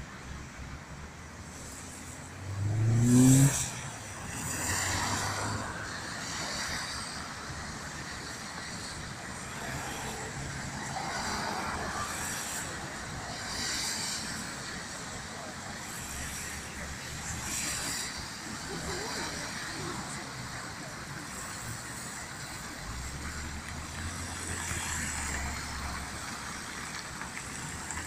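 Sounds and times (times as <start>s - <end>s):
cars passing on wet road: 0.0s - 28.0s
vehicle engine revving: 2.4s - 3.9s.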